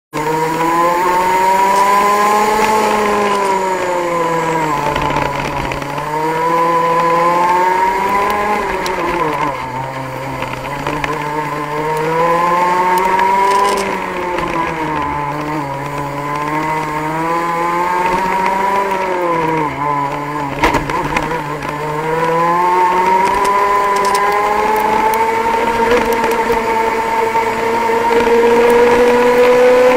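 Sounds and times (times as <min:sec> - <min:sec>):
kart engine revving: 0:00.1 - 0:29.9.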